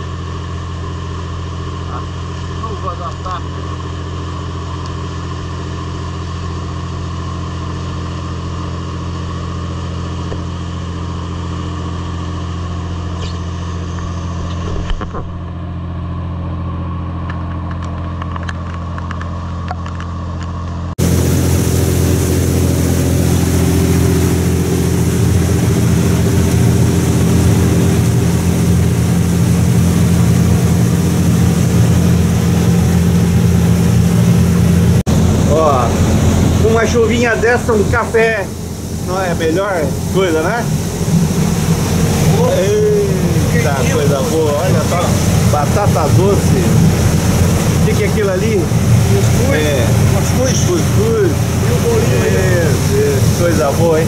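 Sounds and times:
boat engine droning: 0.0s - 54.0s
wind and rain rushing: 21.0s - 54.0s.

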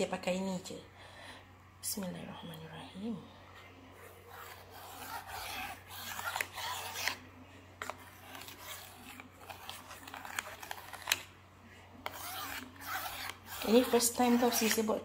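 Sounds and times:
stick scraping through batter: 4.0s - 11.3s, 12.0s - 15.0s.

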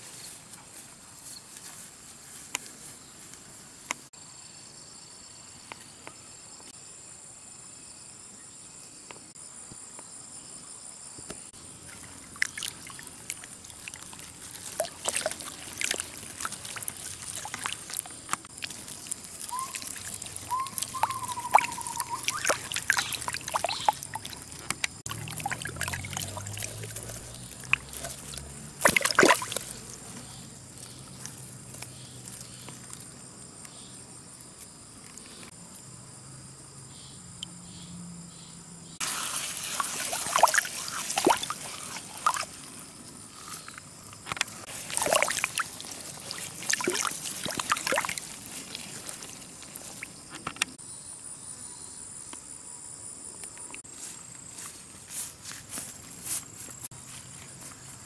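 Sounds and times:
water trickling and splashing: 11.6s - 33.2s, 39.0s - 50.8s.

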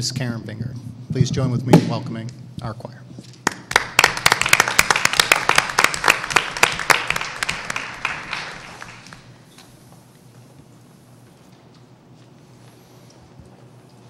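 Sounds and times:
audience applauding: 3.4s - 9.4s.

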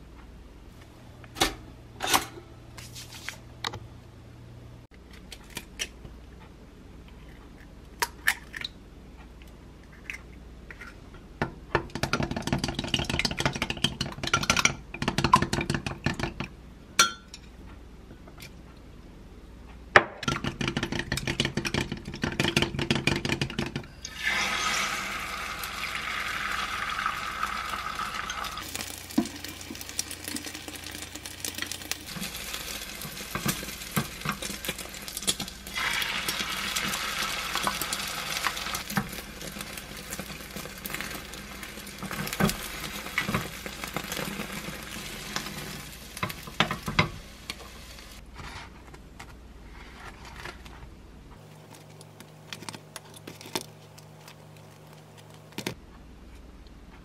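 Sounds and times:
egg sizzling in a pan: 24.1s - 48.2s.

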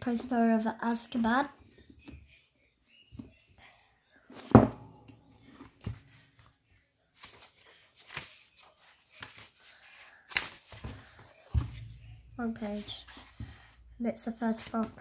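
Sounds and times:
book thumping on table: 4.4s - 5.1s, 10.9s - 12.2s
pages rustling: 7.1s - 13.7s.

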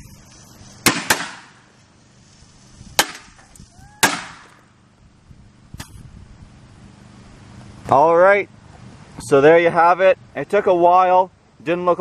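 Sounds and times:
firecrackers banging: 0.0s - 4.8s.

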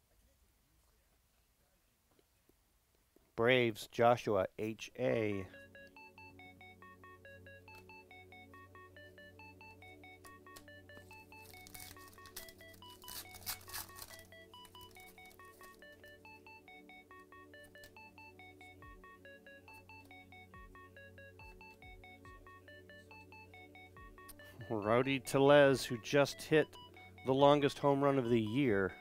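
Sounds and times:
plinking background music: 5.2s - 29.0s
foil wrapper crinkling: 11.4s - 16.0s.

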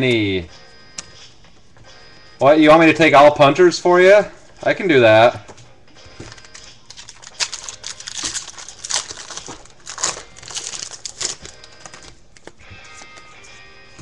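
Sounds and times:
foil wrappers crinkling and tearing: 6.2s - 13.1s.

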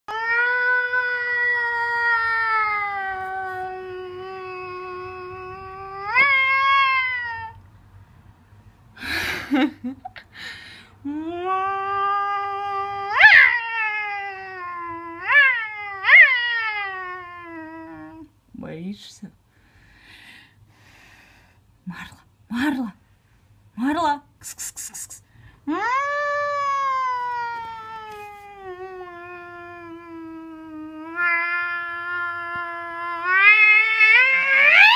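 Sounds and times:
cat yowling: 0.1s - 7.6s, 11.5s - 18.3s, 25.7s - 34.9s
cat hissing: 24.4s - 25.3s, 27.2s - 34.9s.

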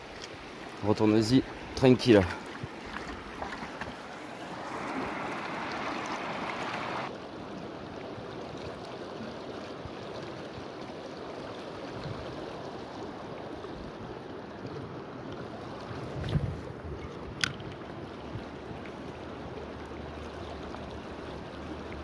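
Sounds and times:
river water rushing over stones: 0.0s - 22.0s
close water hiss: 4.4s - 7.1s.

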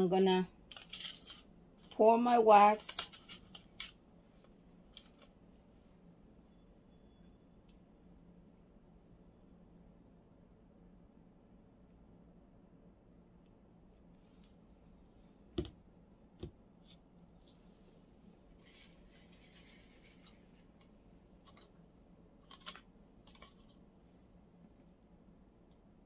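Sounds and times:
soft scraping rustle: 16.9s - 21.6s.

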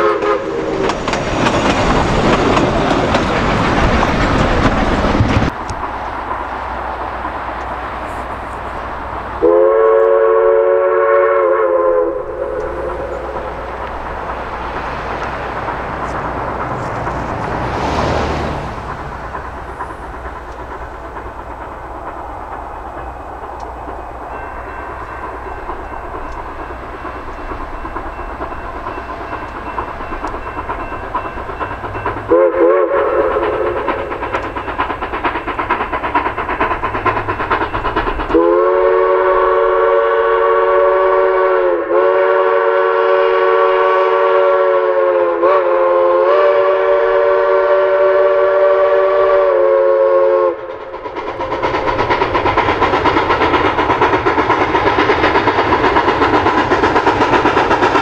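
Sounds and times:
steam locomotive whistle: 0.0s - 1.0s, 9.4s - 13.8s, 31.8s - 34.4s, 38.3s - 50.8s
regular train beats: 0.0s - 58.0s
running train noise: 0.0s - 58.0s.

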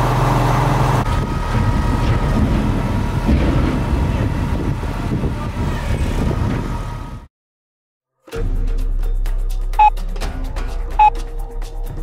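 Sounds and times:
low engine rumble: 0.0s - 7.3s.

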